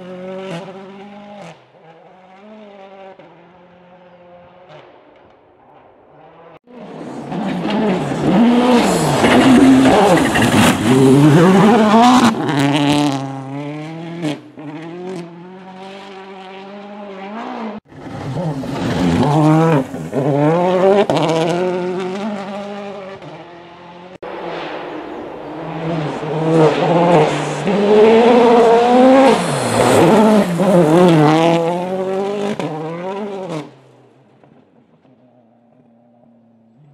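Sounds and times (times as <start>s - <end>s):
rally car engine revving past: 25.5s - 33.9s.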